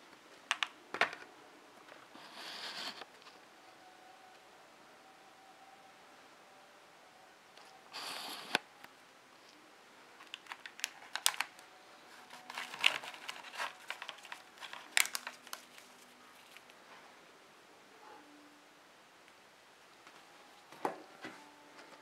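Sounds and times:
plastic crinkling clicks: 0.5s - 1.2s, 10.2s - 11.6s, 12.3s - 16.8s
plastic packaging rustling: 10.2s - 16.8s.

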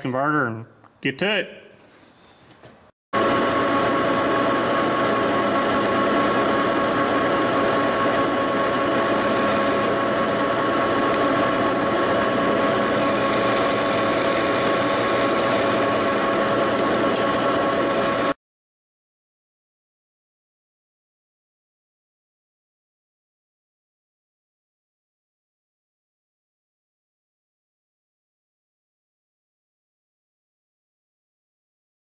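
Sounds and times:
lathe machine drone: 3.2s - 18.4s.

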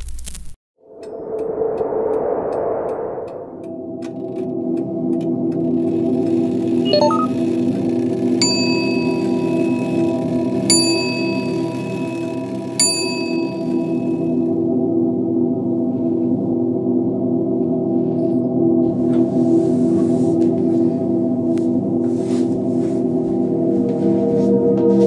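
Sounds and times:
low steady drone: 0.8s - 25.0s
ringing bell-like strikes: 8.4s - 14.5s.

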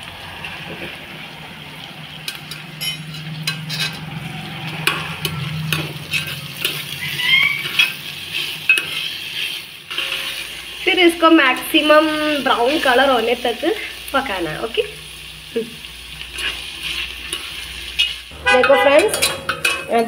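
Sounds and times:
onions sizzling in hot fat: 0.0s - 20.0s
spoon scraping metal pot: 2.3s - 10.6s, 16.4s - 20.0s.

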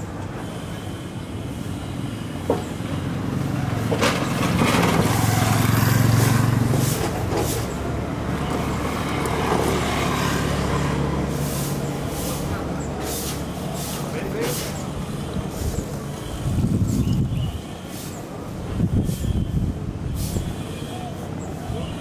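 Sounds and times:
city noise: 0.0s - 22.0s
vehicle engine passing: 3.0s - 17.0s.

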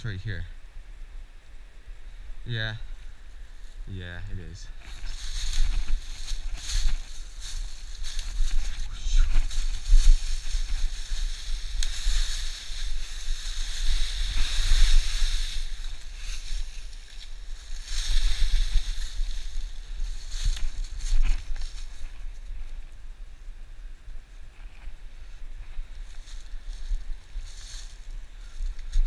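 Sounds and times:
steady low rumble: 0.0s - 29.0s
footsteps crunching through dry leaves: 4.7s - 22.8s, 24.9s - 29.0s.

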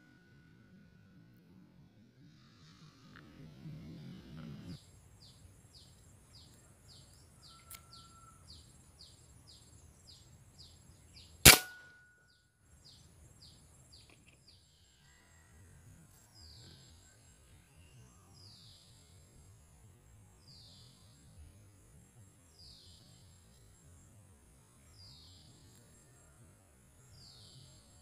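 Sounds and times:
rifle shot: 11.4s - 12.0s.

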